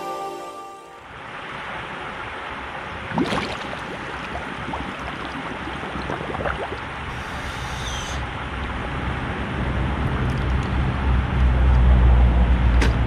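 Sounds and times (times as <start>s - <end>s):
water sloshing and lapping: 2.9s - 7.2s
sharp water splash: 3.0s - 6.8s.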